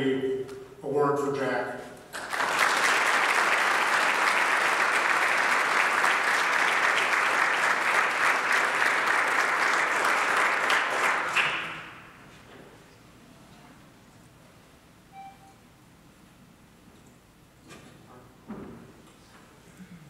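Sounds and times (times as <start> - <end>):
audience applauding: 2.1 - 12.2.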